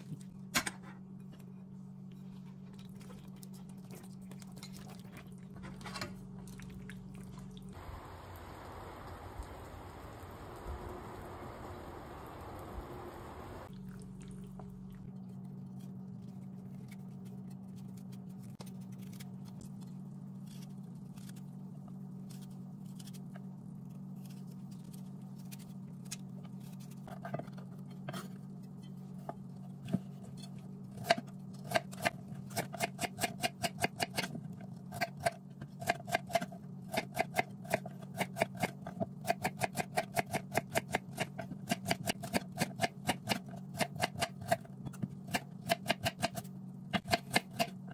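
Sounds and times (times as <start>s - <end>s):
low hum: 0.0s - 31.5s.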